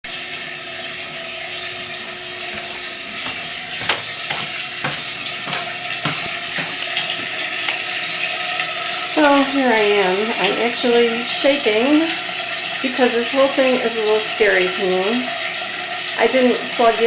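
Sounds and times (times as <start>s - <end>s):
water running hiss: 0.8s - 17.0s
footsteps on wooden stairs: 2.5s - 7.8s.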